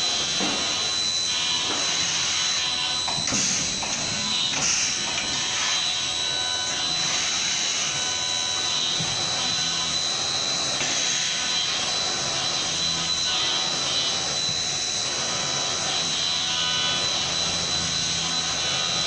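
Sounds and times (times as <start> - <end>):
high-pitched spindle whine: 0.0 - 19.0.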